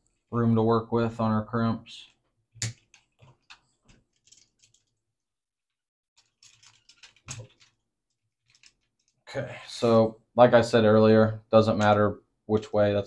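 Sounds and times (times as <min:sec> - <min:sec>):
plastic parts clicking: 0:02.6 - 0:04.9, 0:06.2 - 0:07.8, 0:08.4 - 0:09.2.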